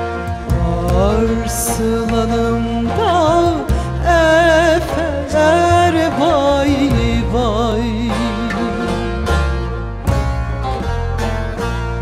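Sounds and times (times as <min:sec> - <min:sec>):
instrumental accompaniment: 0:00.0 - 0:12.0
woman singing with vibrato: 0:00.4 - 0:09.5.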